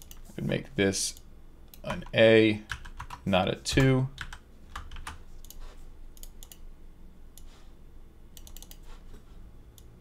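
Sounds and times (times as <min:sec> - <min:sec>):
computer keyboard typing: 0:01.7 - 0:05.6, 0:08.4 - 0:08.8.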